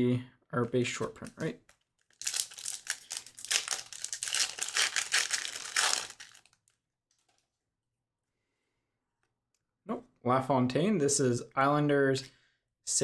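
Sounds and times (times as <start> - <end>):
wrapper crinkling: 1.7 - 7.4.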